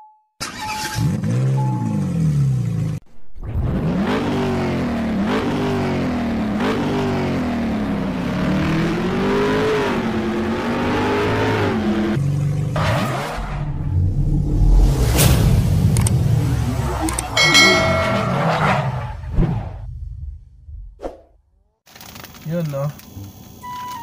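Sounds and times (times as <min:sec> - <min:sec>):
car engine revving: 0:01.0 - 0:19.7.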